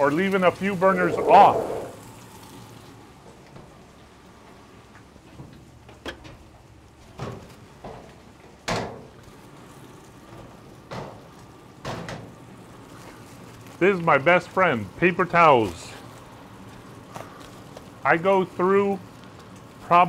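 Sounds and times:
bacon sizzling on a griddle: 7.0s - 20.0s.

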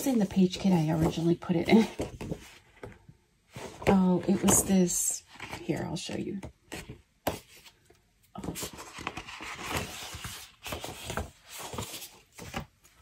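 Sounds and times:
paper sheets rustling and sliding: 8.4s - 12.7s.

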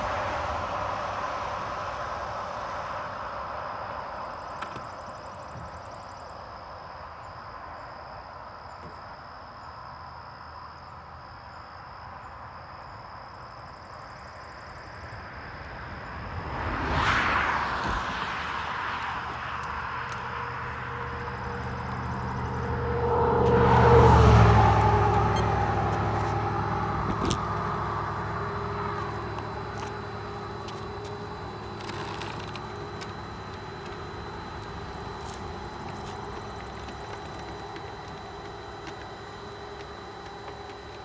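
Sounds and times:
car driving past: 16.2s - 36.6s.

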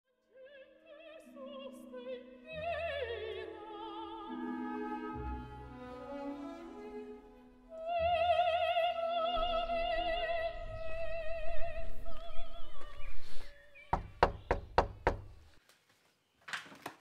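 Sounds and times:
operatic singing: 0.4s - 13.8s
knuckles knocking on door: 13.9s - 15.4s.

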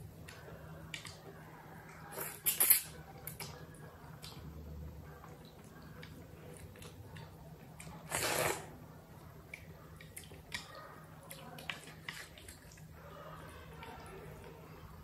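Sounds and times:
noodle slurp: 8.0s - 8.7s
wet chewing: 9.5s - 14.6s.

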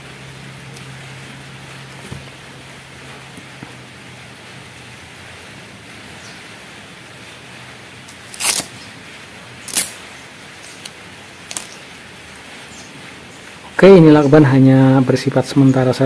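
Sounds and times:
tape ripping off roll: 8.1s - 8.8s, 9.6s - 10.0s.

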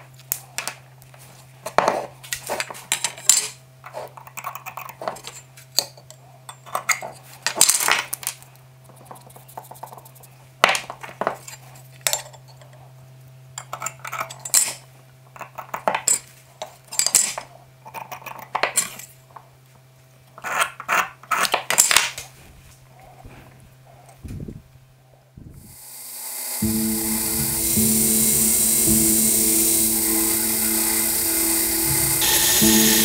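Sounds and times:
scriber scratching metal: 8.8s - 10.4s, 20.4s - 21.6s
steady low hum: 22.4s - 33.0s.

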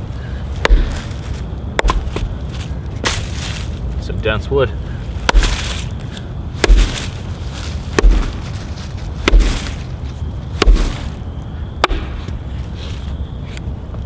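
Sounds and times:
axe striking wood: 0.6s - 1.0s, 1.8s - 2.3s, 5.3s - 5.7s, 6.6s - 7.1s, 8.0s - 8.4s, 9.2s - 9.8s, 10.6s - 11.1s, 11.8s - 12.4s.

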